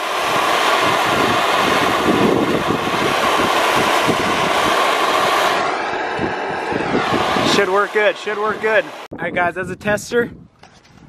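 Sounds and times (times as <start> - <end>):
propane torch flame rushing: 0.0 - 9.1.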